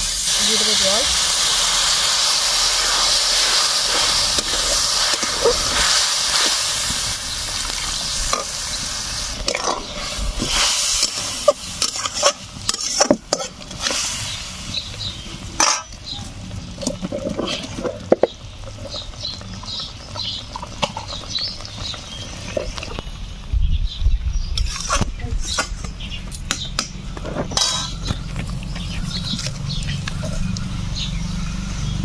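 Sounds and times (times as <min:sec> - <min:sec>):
sizzling hiss: 0:00.0 - 0:23.5
metal spatula scraping a pan: 0:03.4 - 0:06.6, 0:09.4 - 0:14.4, 0:15.5 - 0:16.0, 0:24.6 - 0:25.9, 0:27.2 - 0:28.2.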